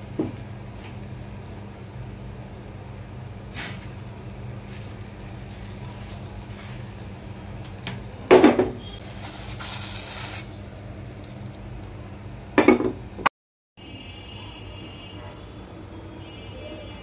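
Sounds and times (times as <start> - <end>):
spatula working in frying pan: 0.0 - 12.0
steady low hum: 0.0 - 13.3.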